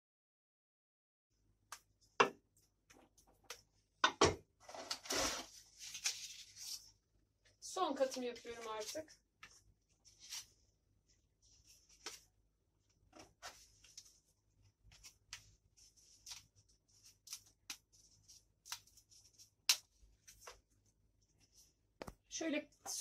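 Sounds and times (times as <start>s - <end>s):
dry pasta sheets clicking and scraping: 14.8s - 20.6s.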